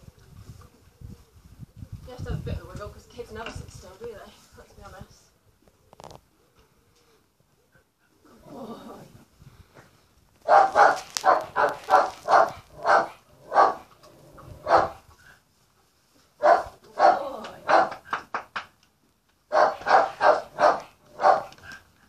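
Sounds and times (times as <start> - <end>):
dog barking: 10.4 - 13.9, 14.6 - 15.0, 16.4 - 18.0, 19.5 - 21.6.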